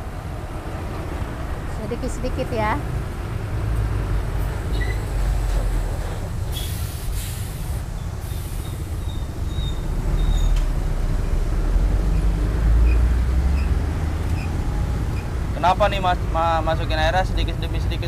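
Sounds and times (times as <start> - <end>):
road traffic rumble: 0.0 - 18.0
loud hissing: 6.4 - 9.7.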